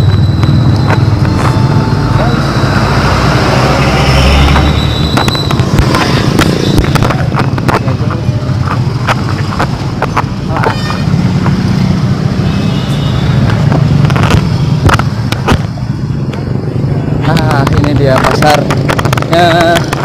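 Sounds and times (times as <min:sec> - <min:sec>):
motor scooters in street traffic: 0:00.0 - 0:20.0.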